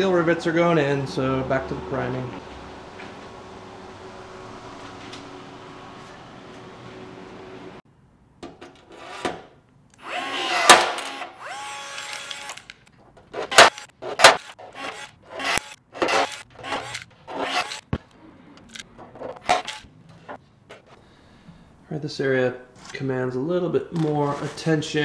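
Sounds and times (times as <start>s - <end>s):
rivet tool motor whir: 10.0s - 17.9s, 19.4s - 19.9s.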